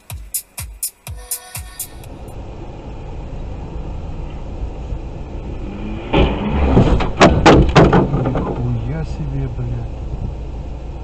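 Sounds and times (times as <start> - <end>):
car engine and road noise: 1.8 - 11.0
loud bang: 5.6 - 8.7.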